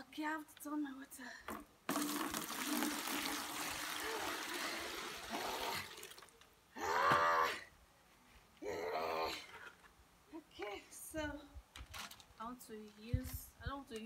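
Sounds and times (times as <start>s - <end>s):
tap water running into bucket: 1.9s - 6.3s.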